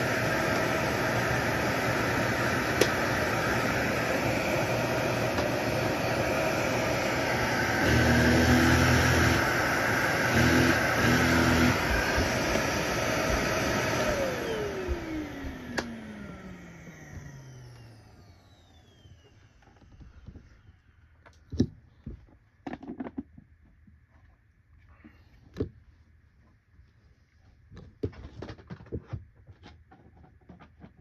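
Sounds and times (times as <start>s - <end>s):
vacuum motor winding down: 0.0s - 20.3s
vacuum cleaner whine: 0.0s - 21.1s.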